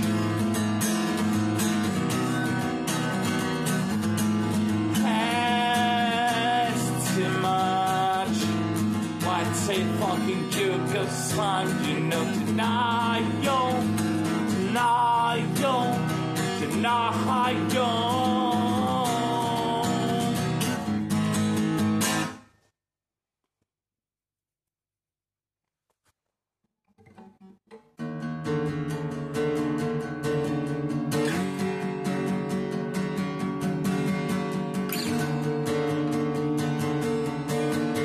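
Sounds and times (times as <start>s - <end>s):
acoustic guitar strumming chords: 0.0s - 22.5s, 27.0s - 38.0s
wordless high vocal melody: 4.9s - 20.9s.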